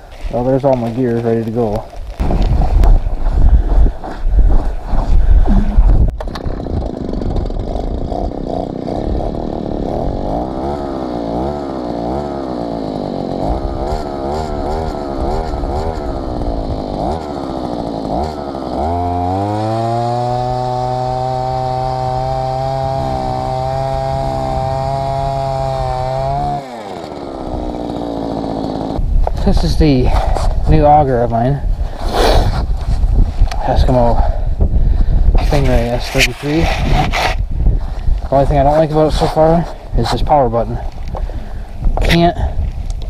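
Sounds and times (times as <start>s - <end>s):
two-stroke engine running: 5.4s - 29.1s.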